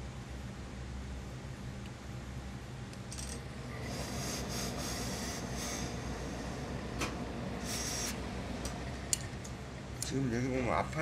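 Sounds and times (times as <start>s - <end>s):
steady low hum: 0.0s - 11.0s
steam iron hissing: 3.8s - 6.8s, 7.6s - 8.2s.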